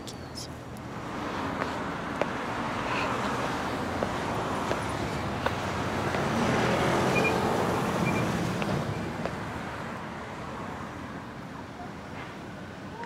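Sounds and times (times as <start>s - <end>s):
vehicle passing: 0.9s - 11.1s.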